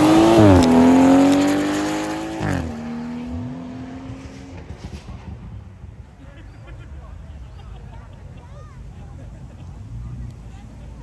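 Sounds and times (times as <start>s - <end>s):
car engine accelerating: 0.0s - 5.4s.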